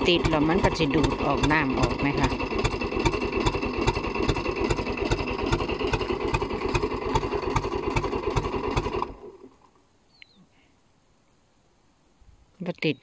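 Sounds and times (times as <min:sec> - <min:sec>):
boat engine running: 0:00.0 - 0:09.8.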